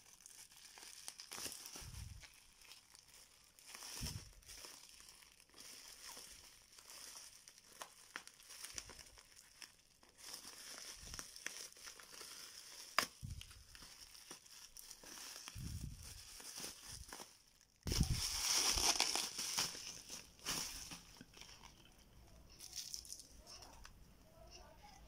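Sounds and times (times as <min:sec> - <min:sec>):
bubble wrap snap: 0:00.0 - 0:21.9
bubble wrap crinkling: 0:00.0 - 0:25.0.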